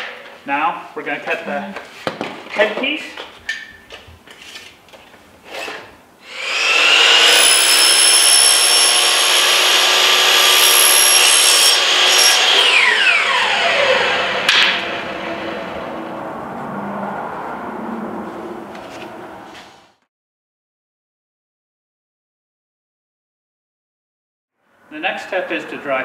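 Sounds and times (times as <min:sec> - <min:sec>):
miter saw whining: 0:06.2 - 0:16.2
saw motor winding down: 0:06.2 - 0:16.2.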